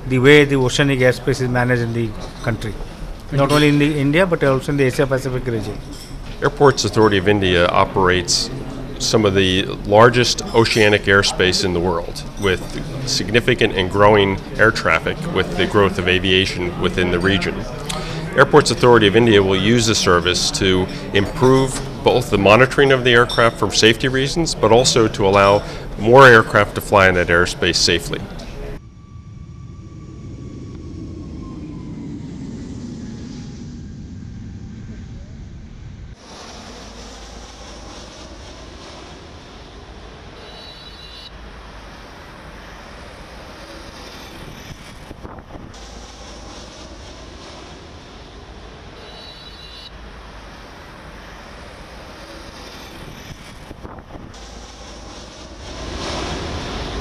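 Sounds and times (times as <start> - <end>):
jet engines on takeoff: 10.9 - 22.8, 24.9 - 57.0.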